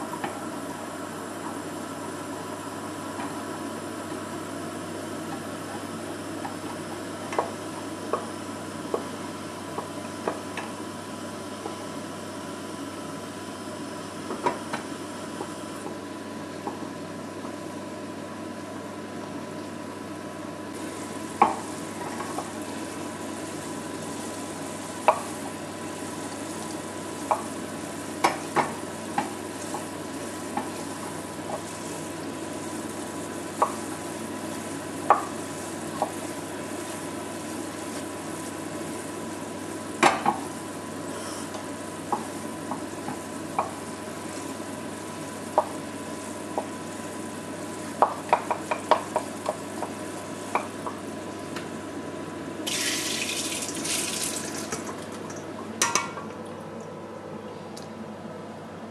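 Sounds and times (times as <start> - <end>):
syrup boiling and bubbling: 20.7 - 57.9.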